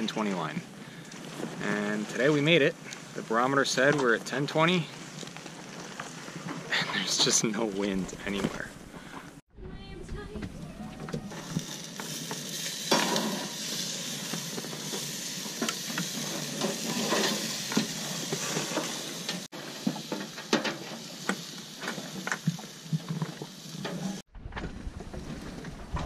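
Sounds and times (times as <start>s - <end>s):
metal spatula scraping grill grate: 11.2s - 19.4s
burger patties sizzling on grill: 11.3s - 24.2s.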